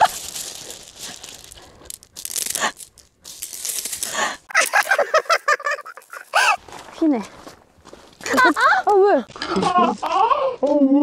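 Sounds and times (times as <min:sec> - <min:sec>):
pebbles clattering on gravel: 0:00.0 - 0:09.4
person speaking: 0:05.8 - 0:07.4, 0:08.3 - 0:10.0.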